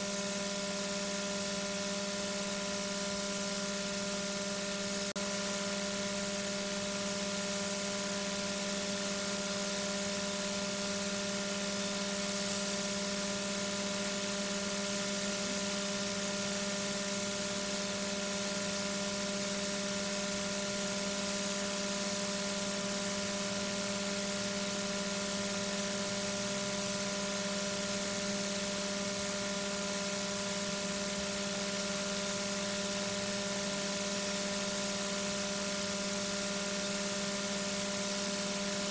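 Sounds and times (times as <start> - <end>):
electrical hum: 1.4 - 38.9.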